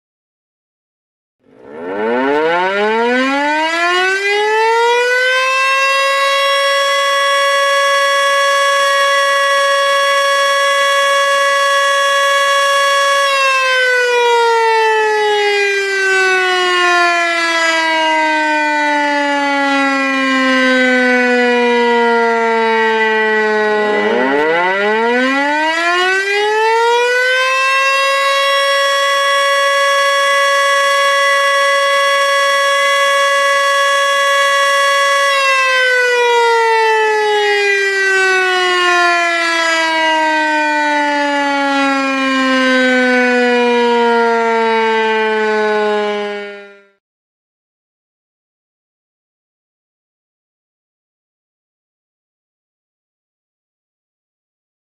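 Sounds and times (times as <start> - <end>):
warning siren wailing: 1.4 - 47.0.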